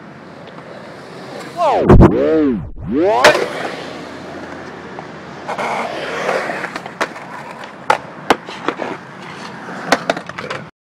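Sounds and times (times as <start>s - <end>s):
skateboard wheels rolling on concrete: 0.0s - 2.4s, 3.0s - 10.7s
skateboard clacking on ground: 3.2s - 10.7s.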